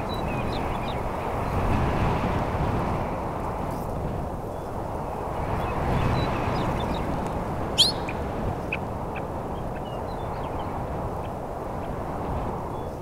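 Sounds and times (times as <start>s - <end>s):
steady wind: 0.0s - 13.0s
faint bird chirps: 7.8s - 8.2s.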